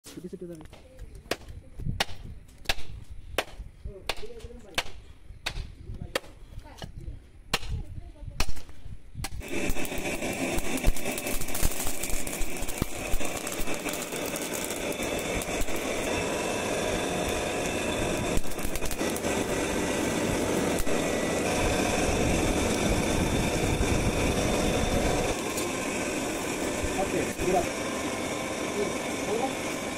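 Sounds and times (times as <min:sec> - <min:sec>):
machete chopping bamboo root: 0:00.6 - 0:06.9, 0:07.5 - 0:07.8, 0:08.4 - 0:09.4
forge blower rushing drone: 0:09.3 - 0:29.9.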